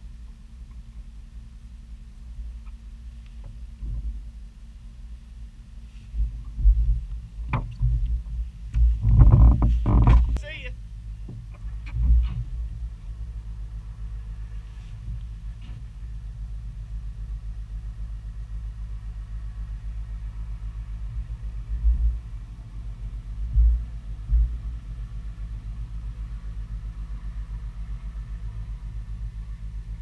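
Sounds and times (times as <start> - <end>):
boat motor droning: 0.0 - 30.0
heavy low thumps: 6.2 - 13.5, 21.2 - 25.1.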